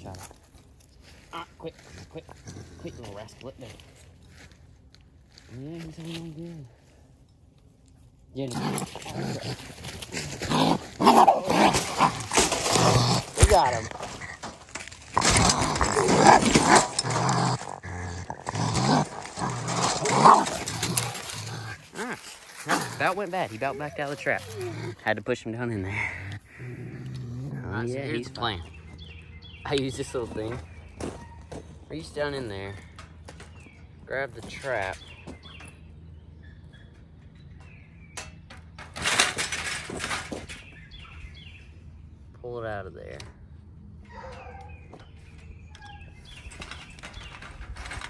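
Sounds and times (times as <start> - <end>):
raccoon growling and snarling: 1.8 - 4.0, 8.3 - 29.1
bird chirps: 28.2 - 31.6, 34.8 - 38.4, 40.5 - 41.9, 44.1 - 47.6.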